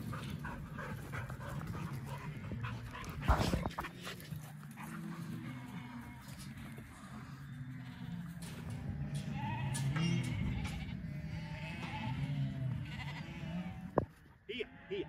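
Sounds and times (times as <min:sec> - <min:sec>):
sheep bleating: 0:04.7 - 0:15.0.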